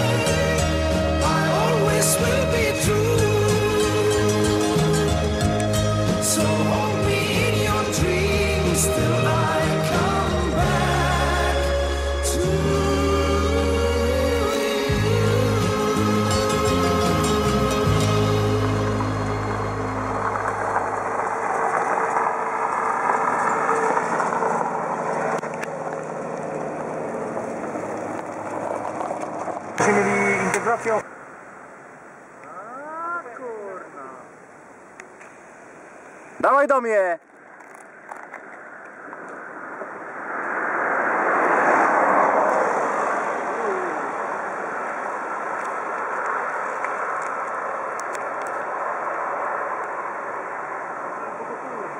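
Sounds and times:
vehicle running: 0.0s - 32.0s.

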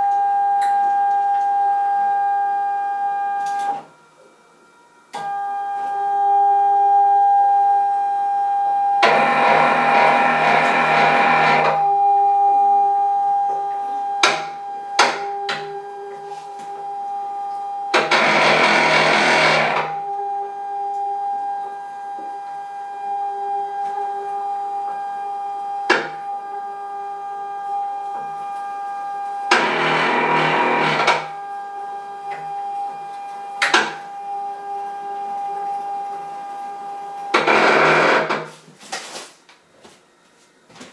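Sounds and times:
saw motor whining: 8.9s - 12.1s, 13.0s - 38.4s.

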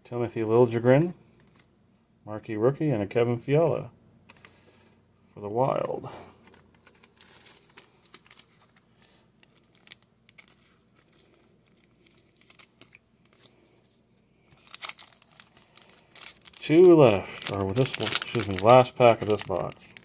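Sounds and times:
trading cards rustling: 5.7s - 20.0s
foil wrapper crinkling: 6.4s - 20.0s
clear plastic crackling: 6.5s - 13.6s, 14.5s - 20.0s.

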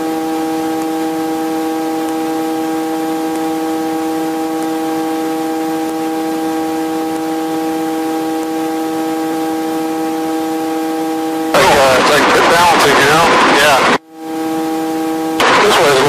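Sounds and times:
helicopter cabin whine: 3.5s - 16.0s.

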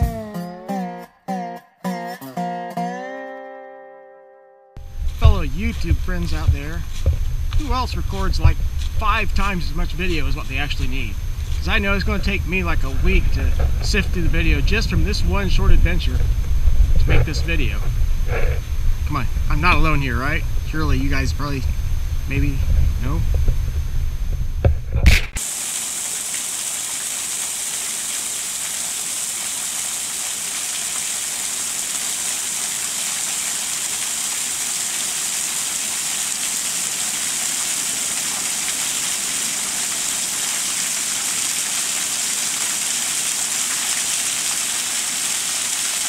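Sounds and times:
brief rumble and bumps: 4.9s - 9.0s, 13.0s - 25.4s
waterfall splashing on rock: 25.1s - 46.0s.

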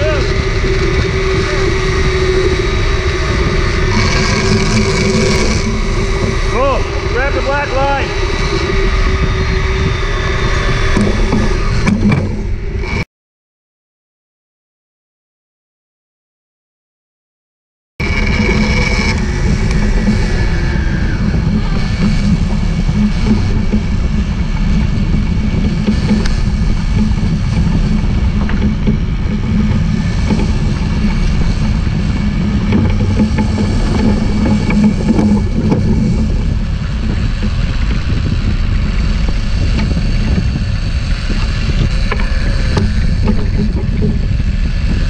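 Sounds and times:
wake washing: 0.0s - 12.5s
boat engines rumbling: 0.0s - 13.0s, 18.0s - 45.0s
wind buffeting microphone: 0.0s - 13.0s, 18.0s - 45.0s.

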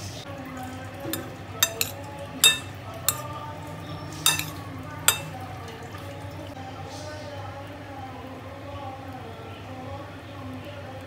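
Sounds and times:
spoon stirring food in bowl: 1.0s - 3.2s, 4.3s - 5.4s
spoon clinking on glass: 1.1s - 3.2s, 4.3s - 5.3s.

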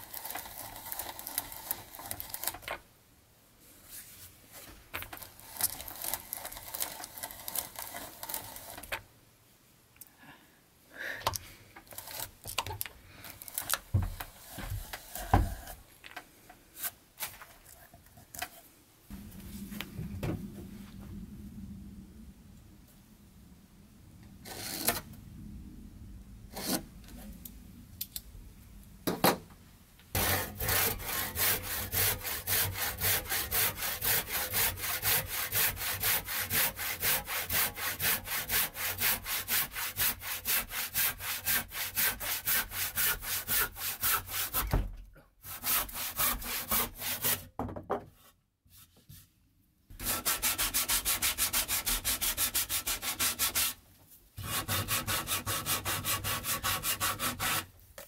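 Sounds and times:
hand saw cutting wood: 0.0s - 2.6s, 5.2s - 8.9s, 11.9s - 12.4s, 24.5s - 25.0s, 30.2s - 44.8s, 45.4s - 47.5s, 49.9s - 53.8s, 54.4s - 57.7s.

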